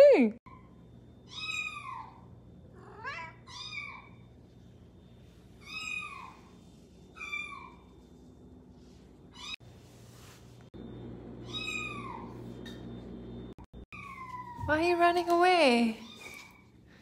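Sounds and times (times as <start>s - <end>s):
cat meowing: 2.8s - 4.2s.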